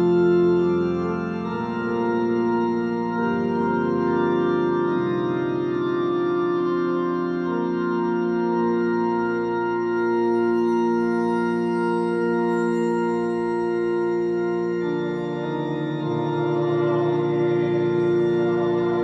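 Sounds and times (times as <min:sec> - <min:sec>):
keyboard organ chords: 0:00.0 - 0:19.0.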